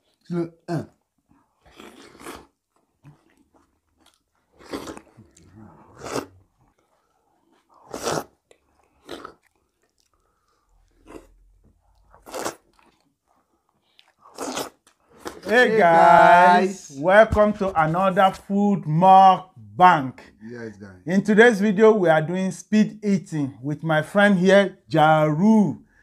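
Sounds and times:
crunchy chewing: 1.4 - 15.4.

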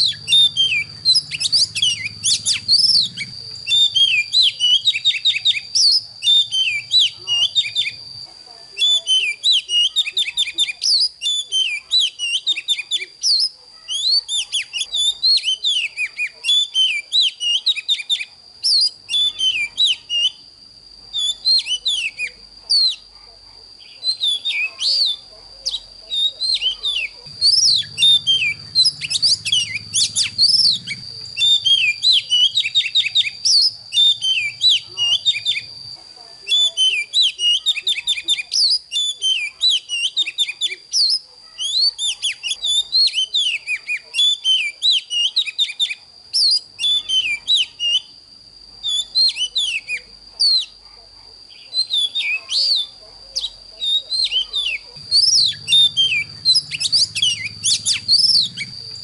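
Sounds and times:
bird singing whistled phrases: 0.0 - 8.0, 8.7 - 20.4, 21.1 - 23.1, 23.8 - 35.7, 36.4 - 48.2, 48.8 - 50.8, 51.5 - 59.0.

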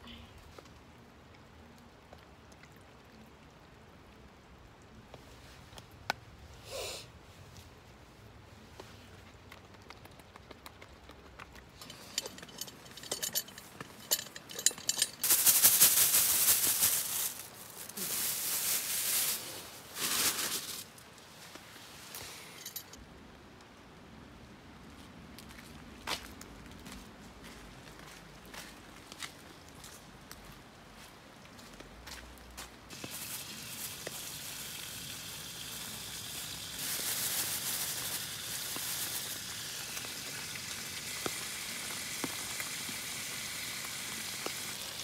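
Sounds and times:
plastic bag rustling and crinkling: 11.7 - 22.9, 32.9 - 34.9, 36.8 - 42.6
food sizzling in frying: 32.9 - 45.0.

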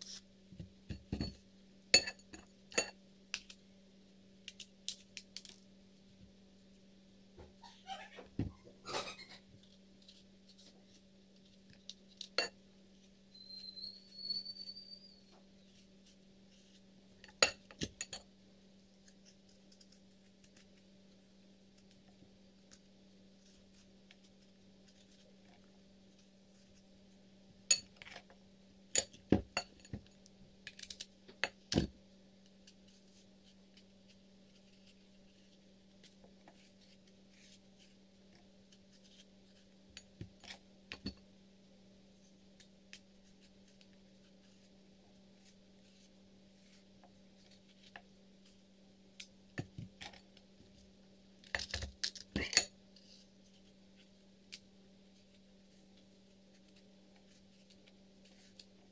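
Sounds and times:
knife clinking against ceramic bowl: 2.0 - 2.9.

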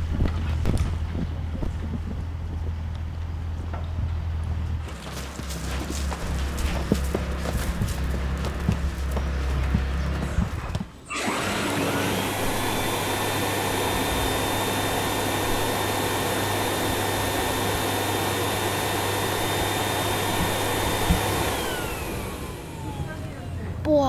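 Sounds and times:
vacuum cleaner motor whine: 8.7 - 23.8.

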